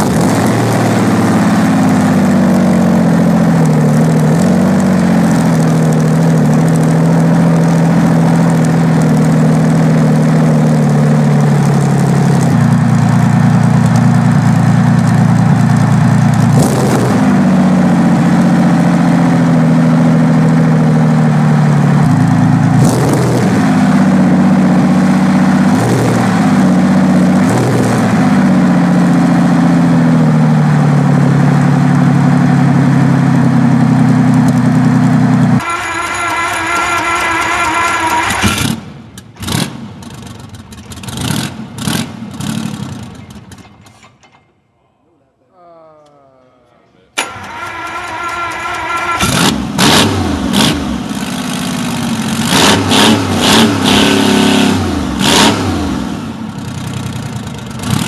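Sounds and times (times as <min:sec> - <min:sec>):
engine running loudly: 0:00.0 - 0:43.3, 0:47.2 - 0:58.0
exhaust cracks: 0:00.0 - 0:44.5, 0:47.2 - 0:58.0.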